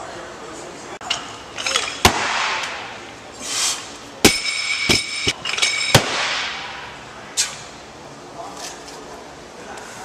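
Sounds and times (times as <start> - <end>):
barbell striking platform: 4.2 - 6.8.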